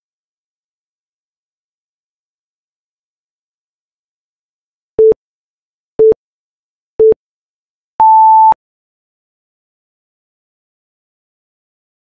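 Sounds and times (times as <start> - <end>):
long high beep: 8.0 - 8.6
short low beeps: 8.0 - 8.6.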